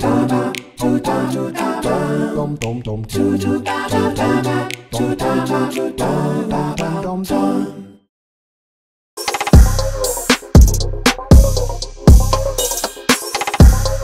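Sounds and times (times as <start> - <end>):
sharp rhythmic clicks: 0.0 - 1.8, 3.7 - 4.9, 9.2 - 14.0
a cappella singing: 0.0 - 8.1.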